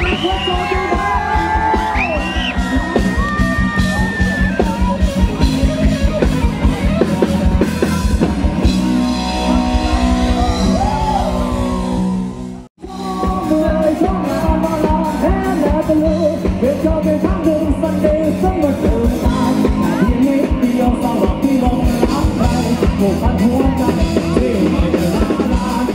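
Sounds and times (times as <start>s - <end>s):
rock band playing: 0.0s - 25.9s
person singing: 12.8s - 25.9s.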